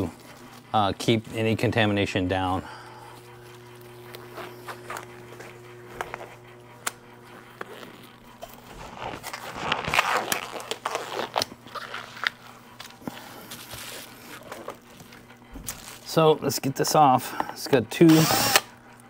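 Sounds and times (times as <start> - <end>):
steady low hum: 0.0 - 19.0
gloves snapping and rustling: 5.9 - 16.1.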